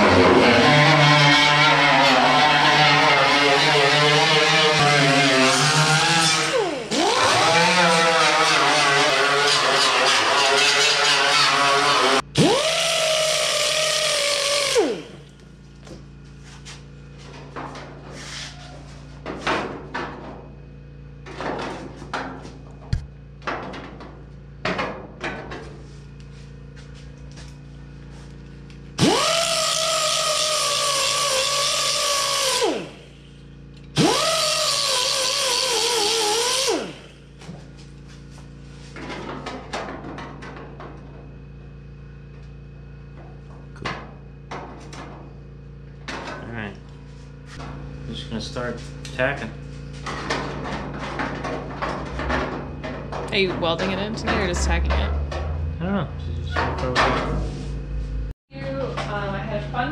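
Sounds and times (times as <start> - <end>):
air grinder whining on steel: 0.0 - 15.5, 28.3 - 39.0.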